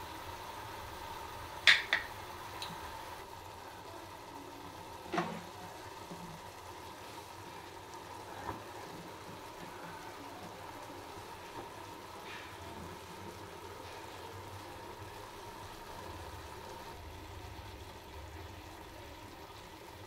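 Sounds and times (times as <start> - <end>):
vegetables sizzling in a pot: 0.0 - 20.0.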